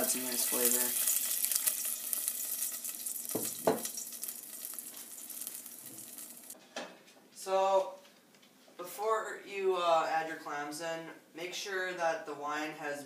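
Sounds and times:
wine sizzling in hot oil: 0:00.0 - 0:06.6.

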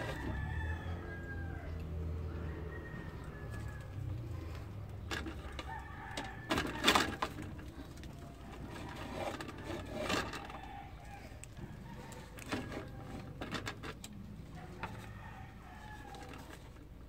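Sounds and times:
rooster crowing: 0:00.0 - 0:04.4, 0:05.4 - 0:07.4, 0:08.2 - 0:13.3, 0:14.5 - 0:16.7.

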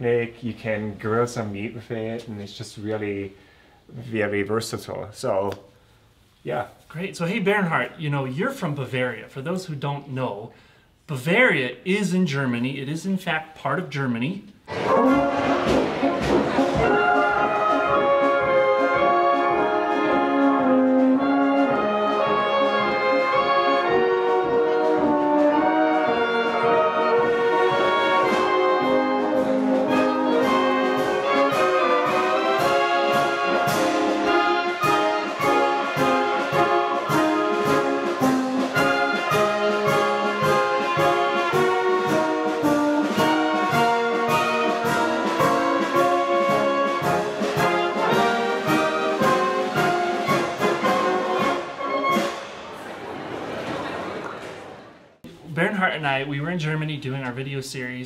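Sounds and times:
brass band playing oom-pah music: 0:14.6 - 0:53.2.

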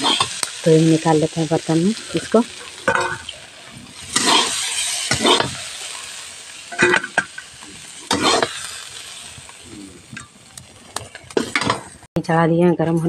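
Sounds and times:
oil sizzling: 0:00.0 - 0:12.1
metal spoon scraping in a pan: 0:02.0 - 0:09.5.

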